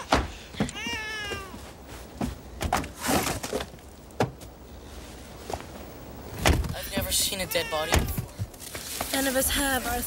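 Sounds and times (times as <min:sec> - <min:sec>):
rustling: 0:04.8 - 0:10.0.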